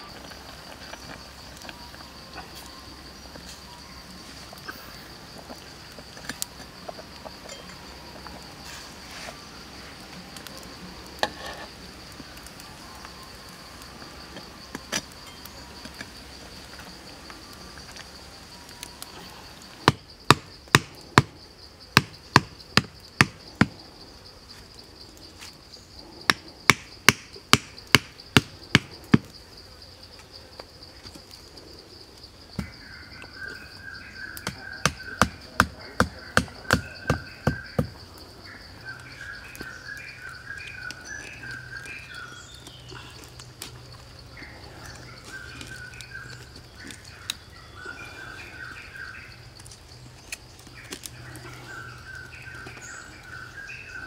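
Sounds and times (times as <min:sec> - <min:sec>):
high insect drone: 0:00.0 - 0:54.0
hammer knocking wooden stakes: 0:19.8 - 0:21.3, 0:22.0 - 0:23.7, 0:26.3 - 0:29.3, 0:34.4 - 0:38.0.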